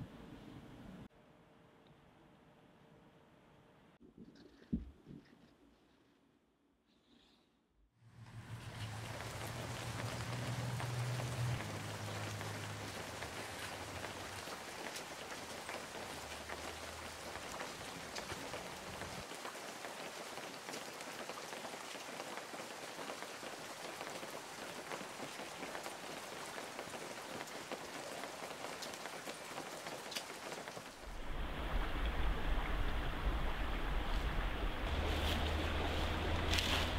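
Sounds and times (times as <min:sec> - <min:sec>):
rain pattering: 0:08.1 - 0:36.9
low steady hum: 0:31.1 - 0:36.9.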